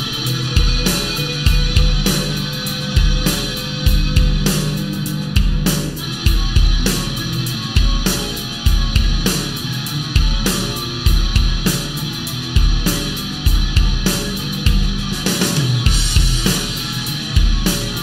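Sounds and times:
electric guitar: 0.0s - 18.0s.

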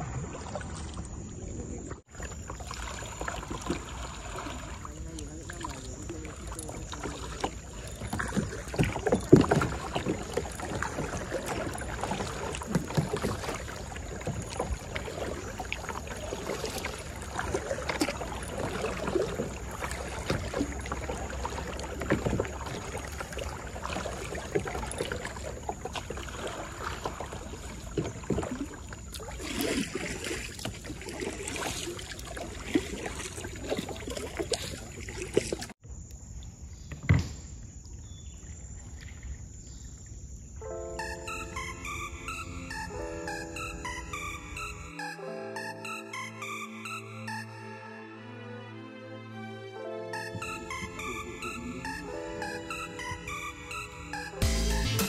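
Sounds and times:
kayak paddles splashing water: 0.0s - 47.8s, 49.8s - 55.0s
paddle knocks: 5.6s - 28.9s.

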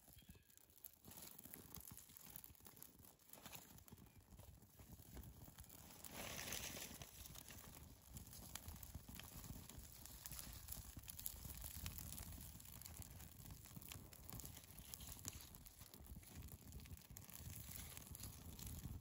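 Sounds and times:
bark and wood shavings crackling: 0.0s - 19.0s.

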